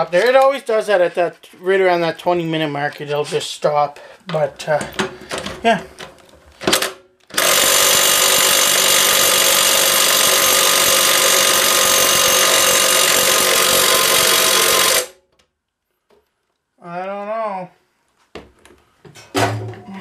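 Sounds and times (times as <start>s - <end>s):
impact driver hammering: 6.6s - 15.2s.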